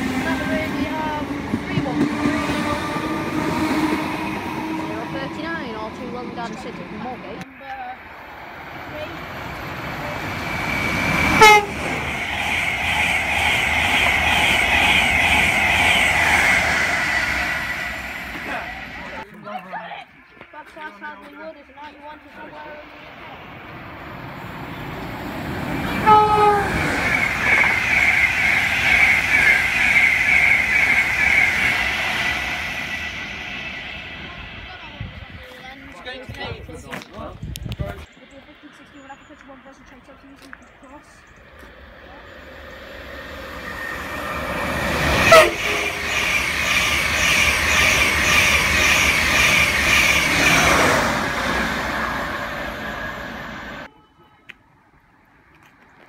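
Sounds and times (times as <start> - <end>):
train wheels rushing on rail: 0.0 - 19.3, 21.8 - 53.9
train horn: 11.2 - 12.1, 25.9 - 32.0, 44.2 - 46.4, 53.8 - 54.6.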